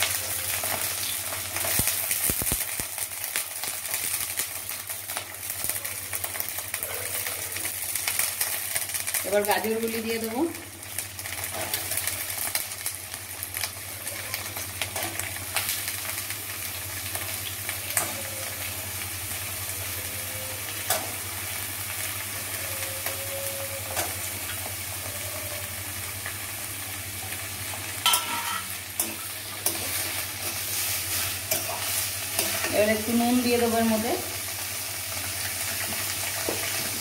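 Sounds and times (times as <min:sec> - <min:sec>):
vegetables sizzling in oil: 0:00.0 - 0:37.0
metal spatula scraping pan: 0:28.1 - 0:32.9.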